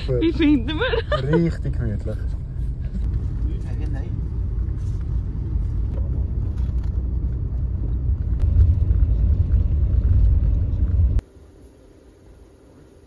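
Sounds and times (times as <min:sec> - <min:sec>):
vehicle interior rumble: 0:00.0 - 0:11.2.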